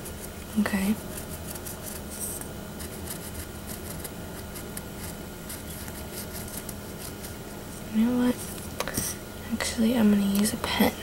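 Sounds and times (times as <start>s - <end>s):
pencil scratching on foam ball: 0.0s - 7.4s
low steady hum: 0.0s - 11.0s.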